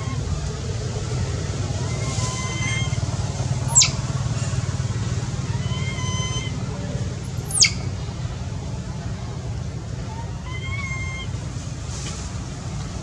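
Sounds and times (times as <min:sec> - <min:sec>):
steady low rumble: 0:00.0 - 0:13.0
shrill animal calls sweeping down: 0:03.6 - 0:04.0, 0:07.4 - 0:07.8.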